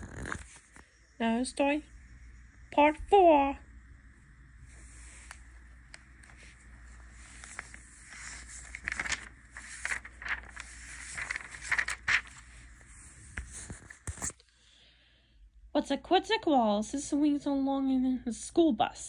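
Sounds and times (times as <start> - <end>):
recording device handling noise: 0.0 - 1.1, 4.7 - 14.5.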